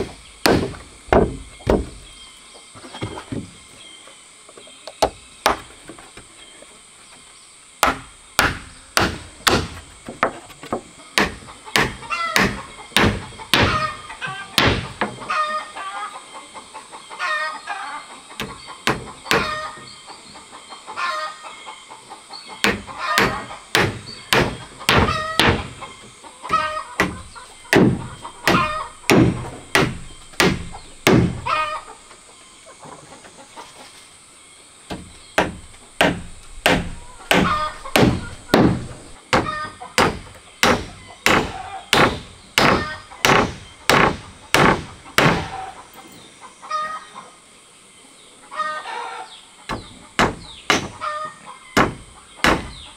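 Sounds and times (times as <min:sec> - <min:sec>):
chickens clucking: 0:10.0 - 0:52.9
hammer driving nails into wood: 0:27.0 - 0:31.5, 0:34.9 - 0:45.5.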